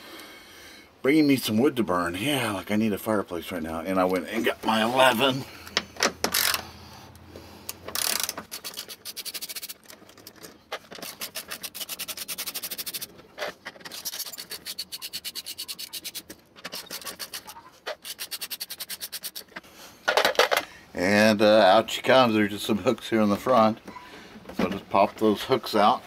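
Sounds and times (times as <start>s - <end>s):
socket ratchet clicking: 6.2s - 6.6s, 7.7s - 10.0s, 18.0s - 19.6s.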